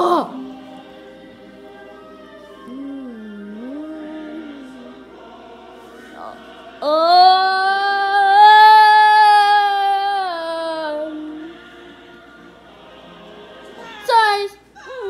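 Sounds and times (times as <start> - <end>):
quiet wavering voice: 1.5 - 5.1, 5.8 - 11.6
person singing long note: 1.7 - 4.9.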